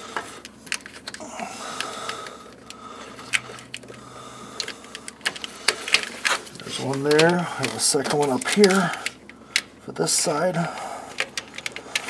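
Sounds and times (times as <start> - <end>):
faint steady hum: 0.0 - 12.0
screwdriver scraping plastic: 4.6 - 9.2
screwdriver clicking on plastic: 4.6 - 9.7, 10.6 - 12.0.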